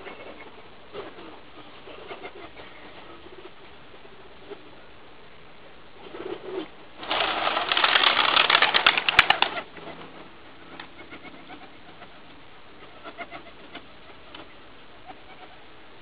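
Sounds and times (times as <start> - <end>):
pigeon wings flapping: 6.0 - 9.8.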